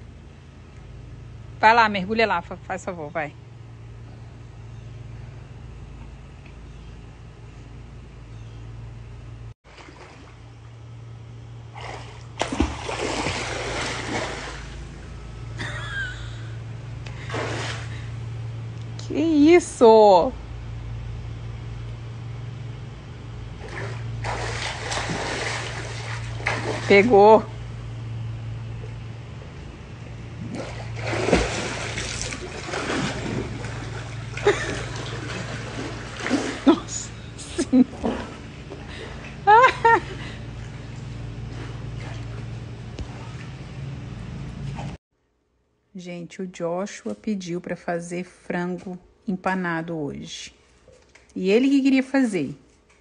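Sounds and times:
steady low hum: 0.0s - 53.0s
water splashing in pool: 9.6s - 10.8s, 11.6s - 15.1s, 17.2s - 18.1s, 23.5s - 27.5s, 30.4s - 38.9s.

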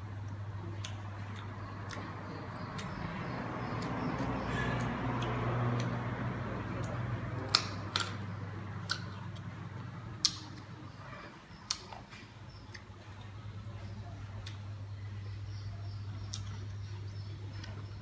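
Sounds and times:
steady low hum: 0.0s - 18.0s
crunchy bites of fruit: 6.8s - 8.2s.

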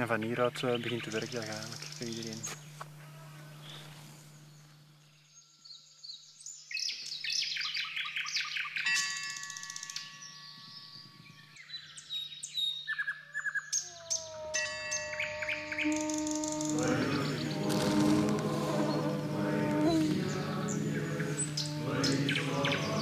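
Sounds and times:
faint low hum: 0.0s - 6.2s, 13.9s - 23.0s
songbirds chirping and singing: 0.0s - 23.0s.

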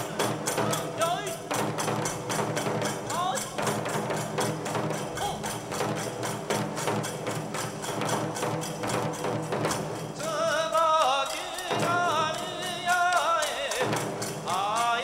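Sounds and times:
person chanting: 0.0s - 1.7s, 10.2s - 15.0s
barrel drum beating: 0.0s - 15.0s
small hand cymbals: 0.0s - 15.0s.

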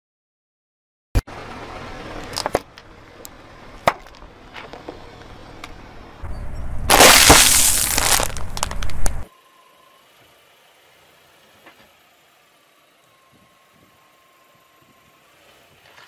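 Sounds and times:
plastic bottles cracking under tyre: 2.2s - 2.7s, 6.9s - 9.3s
tyre crunching object: 6.9s - 9.3s.

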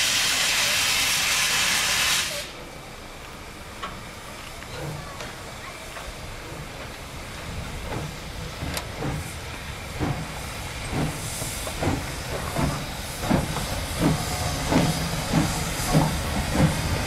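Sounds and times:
hiss of escaping steam: 0.0s - 2.6s, 7.2s - 17.0s
steam locomotive exhaust chuffs: 5.8s - 17.0s.

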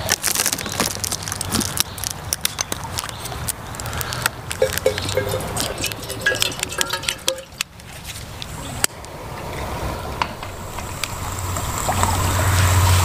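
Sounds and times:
water pouring into kettle: 4.6s - 7.6s
gas burner hiss: 9.8s - 13.0s.

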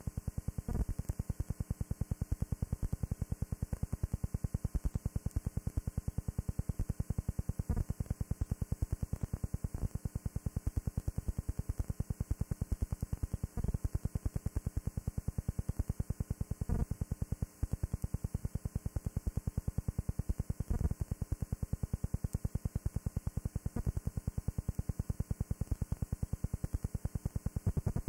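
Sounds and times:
electrical pulsing buzz: 16.6s - 17.0s.

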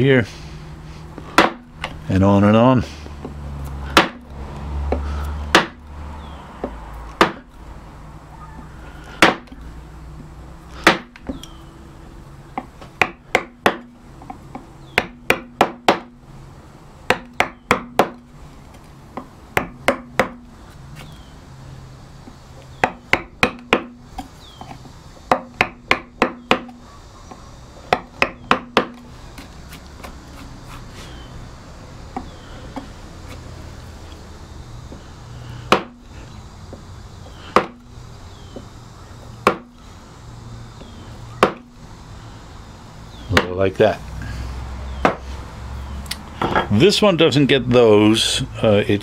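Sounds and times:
mallet tapping carving gouge: 1.4s - 1.7s, 3.2s - 4.2s, 4.9s - 5.8s, 6.6s - 7.5s, 9.2s - 9.5s, 10.8s - 11.4s, 12.6s - 16.1s, 17.1s - 18.2s, 19.1s - 20.4s, 22.8s - 30.5s, 35.7s - 36.0s, 37.6s - 37.8s, 39.4s - 39.7s, 41.4s - 41.7s.

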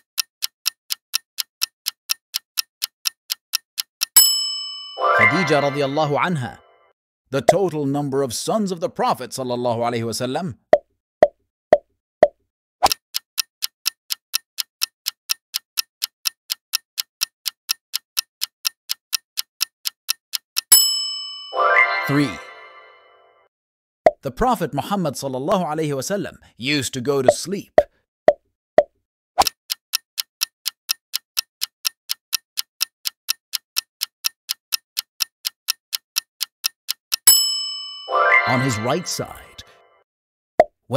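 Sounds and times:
clock-like timer ticking: 0.0s - 6.0s, 11.7s - 21.6s, 28.3s - 38.0s.

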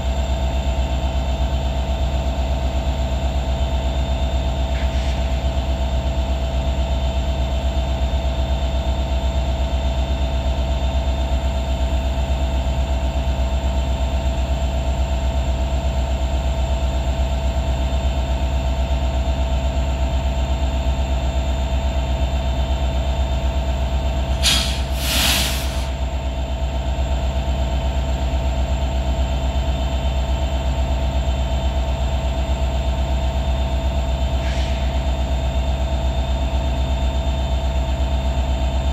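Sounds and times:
diesel locomotive engine droning: 0.0s - 38.9s
steady engine whine: 0.0s - 38.9s
loud air hiss: 24.3s - 26.1s, 34.4s - 35.1s.

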